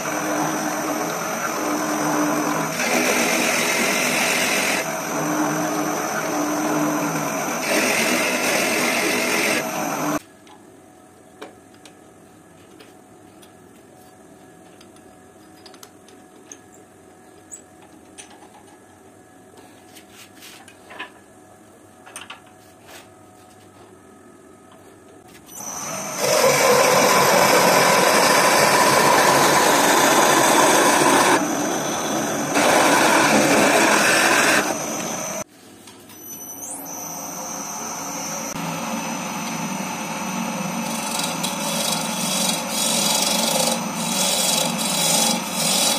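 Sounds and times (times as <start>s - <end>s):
drill bit boring into wood: 0.0s - 10.2s, 25.6s - 35.4s, 40.6s - 45.9s
wood lathe running: 0.0s - 10.2s, 25.6s - 35.4s, 37.3s - 45.9s.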